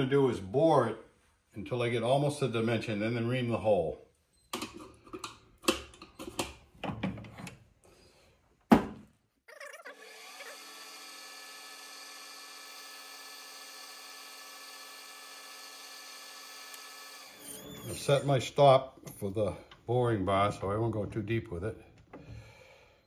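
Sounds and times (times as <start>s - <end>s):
tooling clicks and knocks: 4.5s - 7.6s
metal lathe running: 10.0s - 17.8s.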